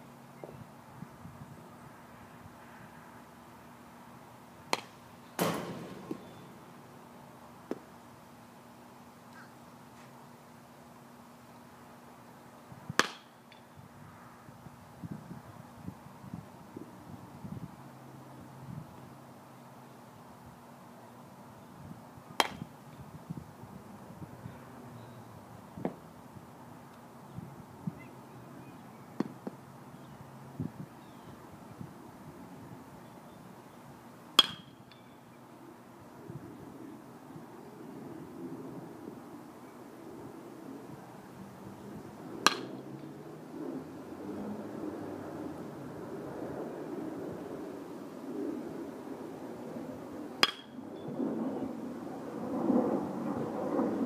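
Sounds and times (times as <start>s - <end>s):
low outdoor background: 0.0s - 54.0s
bat cracking a ball: 4.7s - 6.9s, 7.6s - 7.9s, 12.9s - 13.6s, 22.4s - 22.7s, 29.2s - 29.6s, 34.4s - 35.0s, 42.4s - 42.8s, 50.4s - 50.8s.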